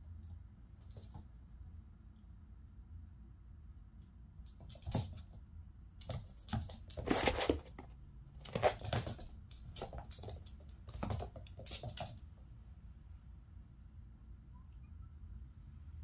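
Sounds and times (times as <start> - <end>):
kitten claws skittering on wood floor: 4.4 - 5.4, 6.0 - 12.3.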